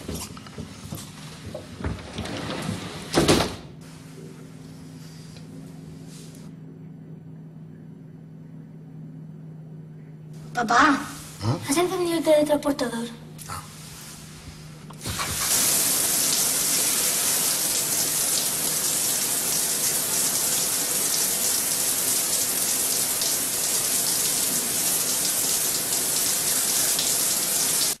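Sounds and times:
shower spray hissing: 0:15.0 - 0:28.0.

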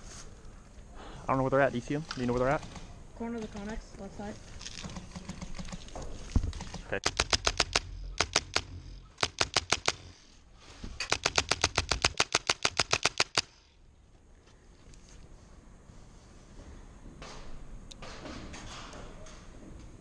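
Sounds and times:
airsoft rifle firing bursts: 0:06.6 - 0:10.2, 0:11.0 - 0:13.6.

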